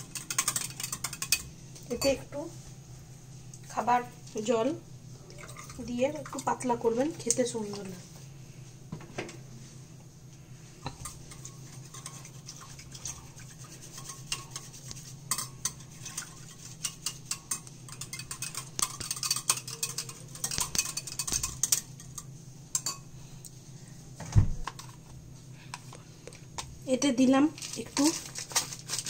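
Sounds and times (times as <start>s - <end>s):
whisk clicking against glass bowl: 0.0s - 1.5s, 10.9s - 23.0s.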